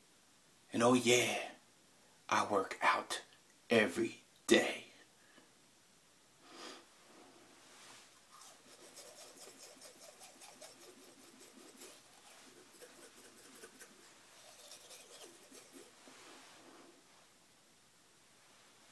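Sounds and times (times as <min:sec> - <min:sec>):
toothbrush scrubbing teeth: 0:08.3 - 0:16.3.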